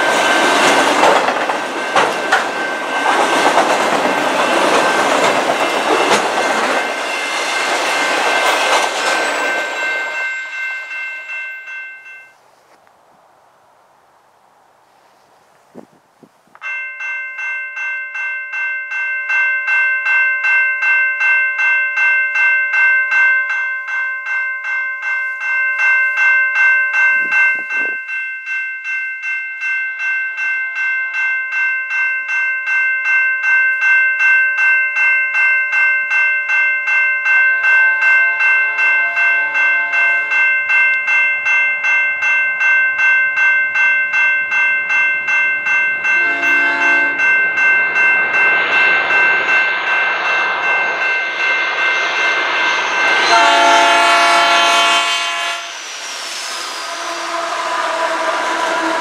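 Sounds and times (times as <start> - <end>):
train rumbling on rails: 0.0 - 11.4, 37.2 - 59.0
level crossing bell ringing: 0.0 - 12.4, 16.6 - 54.6
locomotive horn blasts: 37.5 - 40.4, 46.2 - 47.3, 53.2 - 55.8, 56.9 - 59.0.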